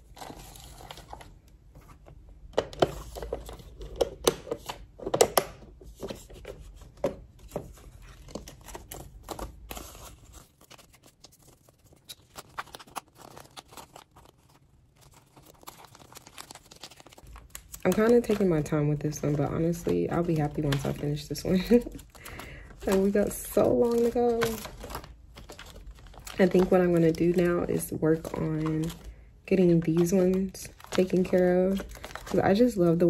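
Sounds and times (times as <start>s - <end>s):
paper banknotes rustling: 6.0s - 32.8s
plastic sleeves crackling: 7.6s - 33.0s.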